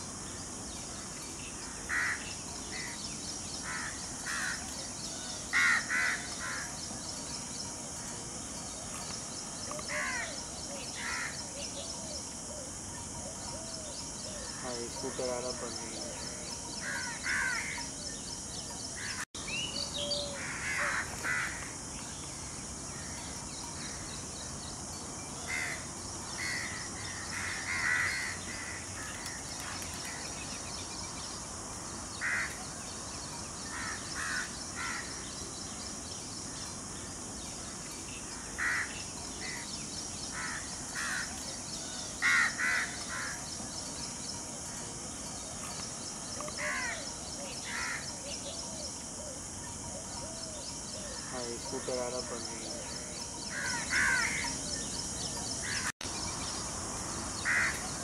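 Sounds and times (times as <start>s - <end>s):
steady high hiss: 0.0s - 58.0s
birds calling: 25.4s - 58.0s.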